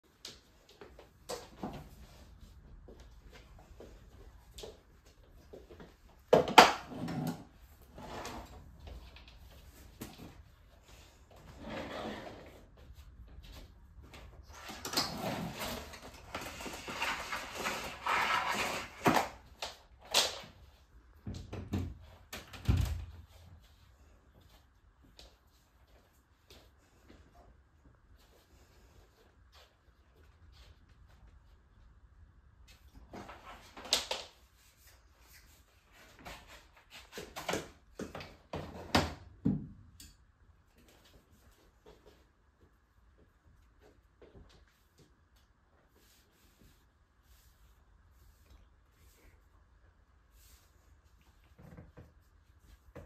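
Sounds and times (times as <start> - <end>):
power cord rustling and scraping: 14.5 - 19.3.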